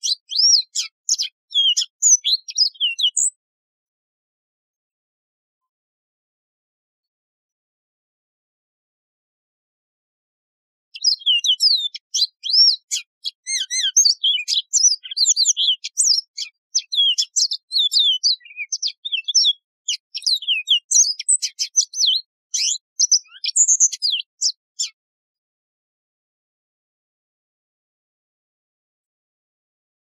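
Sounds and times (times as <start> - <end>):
canary singing: 0.0 - 3.4, 11.0 - 25.0.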